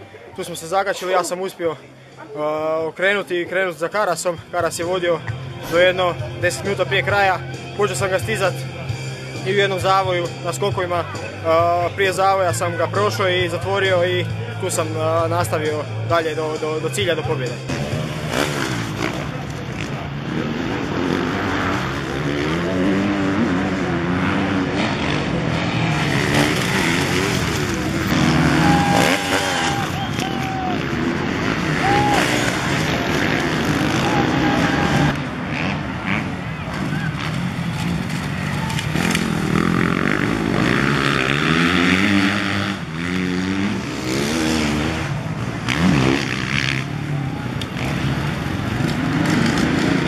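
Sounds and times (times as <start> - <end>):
motorcycle engine revving: 17.5 - 50.0.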